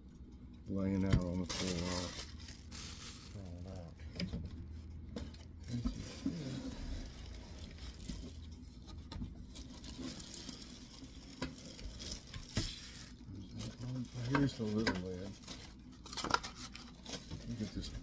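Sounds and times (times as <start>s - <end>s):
plastic and cardboard rustling: 1.0s - 18.0s.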